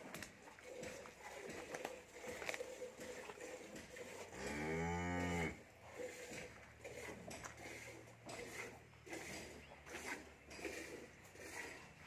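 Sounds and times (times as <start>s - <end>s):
cow mooing: 4.4s - 5.6s.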